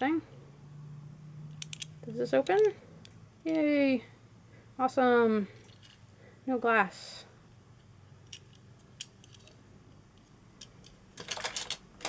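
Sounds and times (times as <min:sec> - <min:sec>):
toy cars clattering on plastic case: 0:11.2 - 0:12.0.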